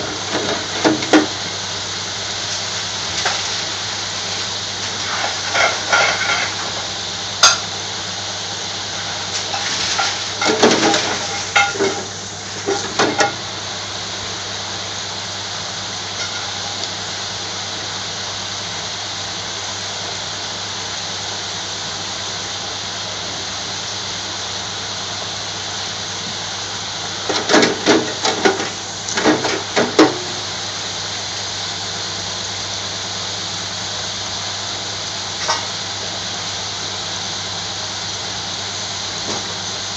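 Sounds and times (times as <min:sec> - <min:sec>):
oil sizzling in deep fryer: 0:00.0 - 0:39.9.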